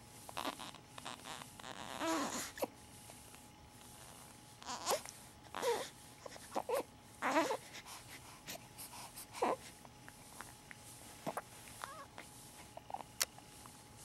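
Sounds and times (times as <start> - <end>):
baby whimpering: 0.4 - 2.7, 4.0 - 7.8, 9.3 - 9.7, 11.3 - 12.2.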